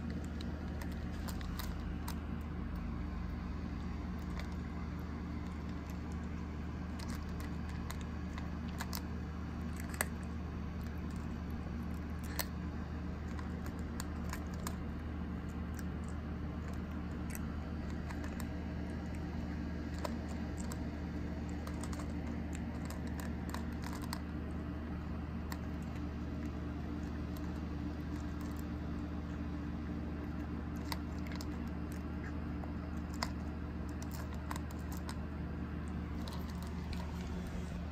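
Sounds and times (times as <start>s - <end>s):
kitten crunching dry kibble: 0.0s - 37.9s
steady low hum: 0.0s - 37.9s.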